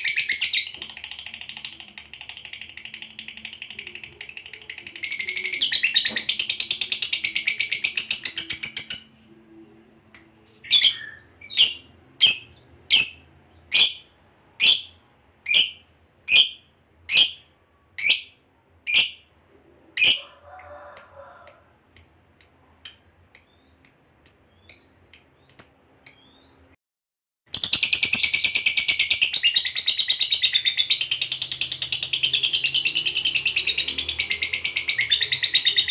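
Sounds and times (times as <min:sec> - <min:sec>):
bird chattering trill: 0:00.0 - 0:09.2, 0:21.0 - 0:26.4, 0:27.6 - 0:35.9
piercing bird chirps: 0:00.0 - 0:09.2, 0:21.5 - 0:26.8, 0:27.6 - 0:35.9.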